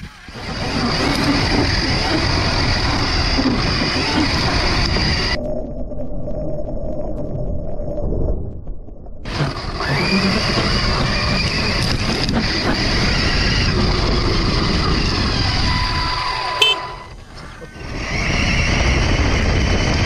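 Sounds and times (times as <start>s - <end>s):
electric motor whining: 0.0s - 5.4s, 9.3s - 17.2s
tyre and ground noise: 0.0s - 5.5s, 8.6s - 20.0s.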